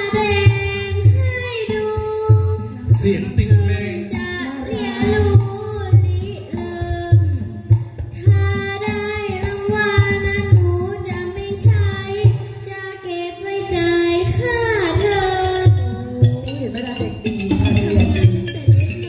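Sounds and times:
girl singing into a microphone: 0:00.0 - 0:03.0, 0:04.1 - 0:16.5
band accompaniment: 0:00.0 - 0:19.0
low drum beat: 0:00.1 - 0:08.6, 0:14.2 - 0:19.0.

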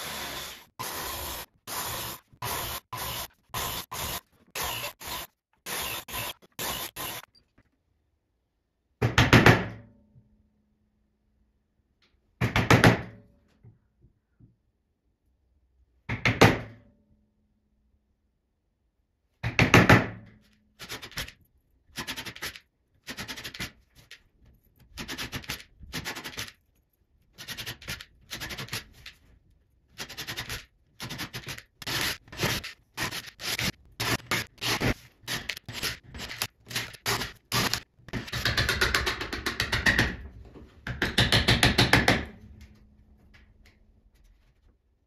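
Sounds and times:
cordless drill bursts: 0:00.0 - 0:07.3.

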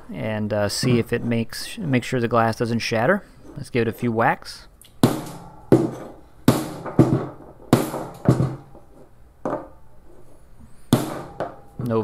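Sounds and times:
rubber mallet whacks: 0:05.0 - 0:08.7, 0:10.9 - 0:11.6.

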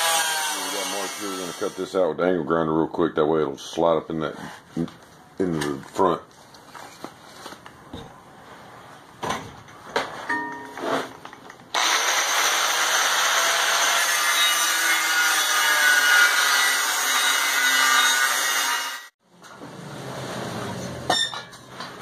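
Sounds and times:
angle grinder cutting steel: 0:00.0 - 0:01.8, 0:11.7 - 0:19.2.

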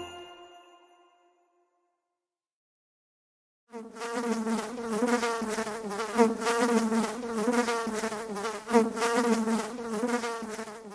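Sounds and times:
flying insect buzzing: 0:03.7 - 0:10.9.

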